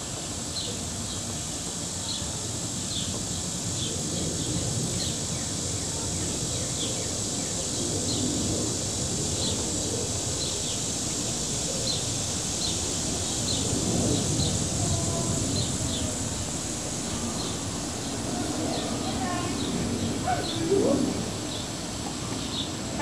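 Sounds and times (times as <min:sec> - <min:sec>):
insect drone: 0:00.0 - 0:23.0
small birds chirping: 0:09.3 - 0:23.0.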